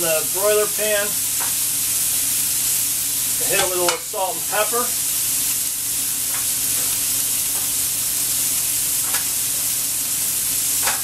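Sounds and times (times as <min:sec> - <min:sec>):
steak sizzling in a pan: 0:00.0 - 0:11.0.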